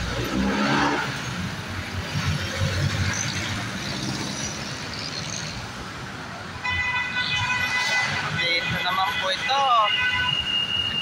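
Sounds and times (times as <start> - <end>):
motor vehicles passing: 0.0 - 6.4.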